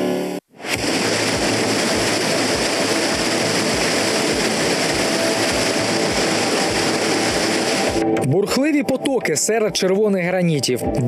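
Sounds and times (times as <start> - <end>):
water rushing over rocks: 0.6 - 9.2.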